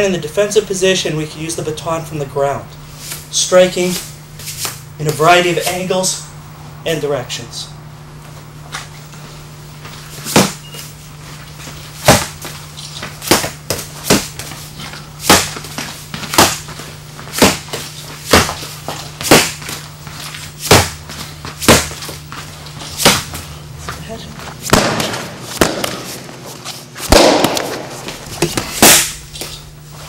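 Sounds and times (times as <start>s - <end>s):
padded baton smacks: 10.2s - 10.6s, 12.0s - 12.4s, 13.2s - 14.4s, 15.2s - 16.7s, 17.3s - 18.6s, 19.2s - 19.8s, 20.6s - 21.0s, 21.6s - 22.0s, 23.0s - 23.3s, 24.6s - 26.4s, 27.0s - 29.3s.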